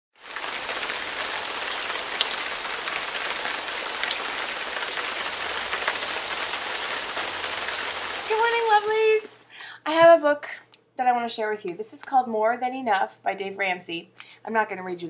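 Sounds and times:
steady rain hiss: 0:00.2 - 0:09.4.

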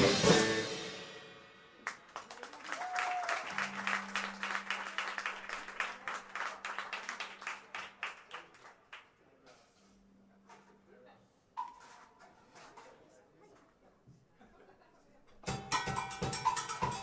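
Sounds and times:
audience applauding: 0:01.8 - 0:09.1.

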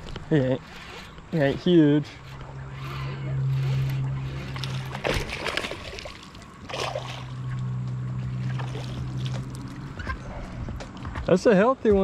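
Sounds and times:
boat motor humming: 0:00.0 - 0:12.0
water splashing: 0:02.2 - 0:07.7, 0:08.3 - 0:09.9.

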